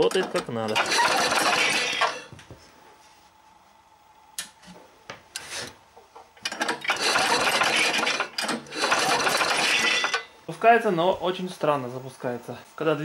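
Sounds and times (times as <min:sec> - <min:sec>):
short mechanical sounds: 0:00.1 - 0:02.3, 0:06.4 - 0:10.3
small engine running: 0:00.8 - 0:02.1, 0:07.0 - 0:08.1, 0:08.7 - 0:09.9.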